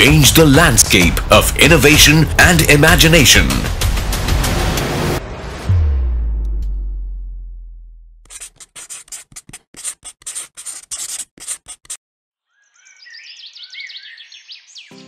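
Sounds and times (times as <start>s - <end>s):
deep cinematic boom: 3.8s - 8.2s
scratchy scribbling strokes: 8.2s - 12.0s
birds chirping: 12.5s - 15.0s.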